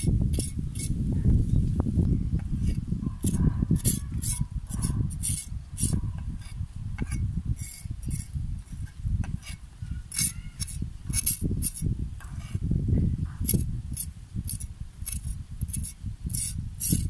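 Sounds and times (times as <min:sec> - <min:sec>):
knife scraping fish: 0:02.5 - 0:12.6, 0:13.5 - 0:17.0.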